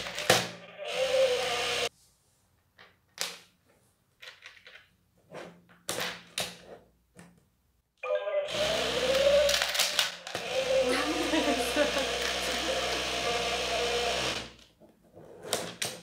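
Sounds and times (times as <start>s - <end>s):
electronic toy buzz: 0.8s - 1.9s, 8.5s - 14.6s.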